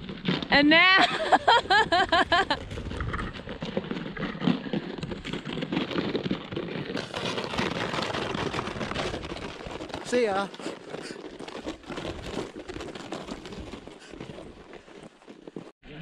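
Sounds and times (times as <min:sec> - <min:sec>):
crunching and scraping in snow: 0:00.0 - 0:15.8
laughter: 0:01.0 - 0:02.6.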